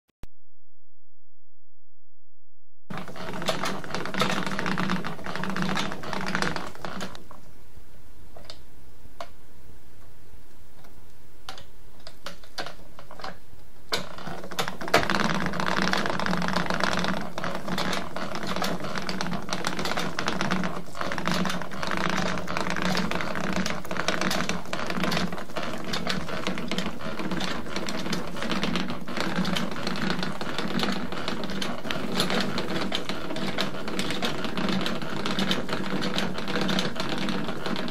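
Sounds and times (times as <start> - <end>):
spinning wheel clattering: 14.0 - 37.9.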